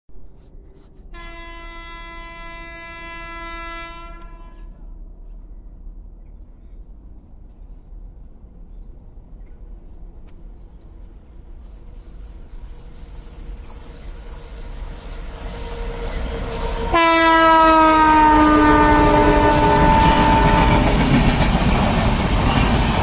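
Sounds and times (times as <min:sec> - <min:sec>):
train rumbling: 0:00.2 - 0:23.0
distant locomotive horn blast: 0:01.2 - 0:04.9, 0:15.4 - 0:21.1.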